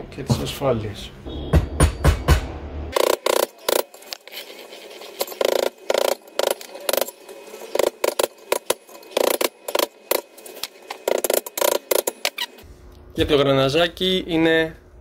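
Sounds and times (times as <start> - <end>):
screwdriver clinking on metal: 3.0 - 12.6.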